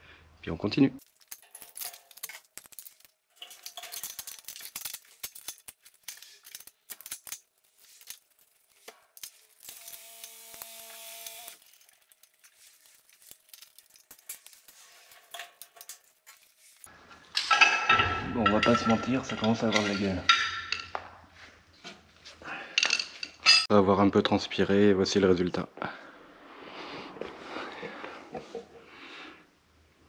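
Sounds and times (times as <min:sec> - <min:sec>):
screwdriver and metal fasteners clicking: 0:01.0 - 0:17.6.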